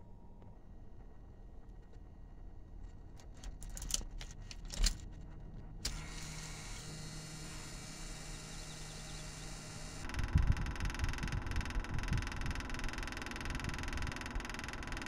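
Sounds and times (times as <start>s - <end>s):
steady hiss with low hum: 0.0s - 14.5s
keys jangling: 3.2s - 5.1s
ignition lock click: 3.4s - 5.0s.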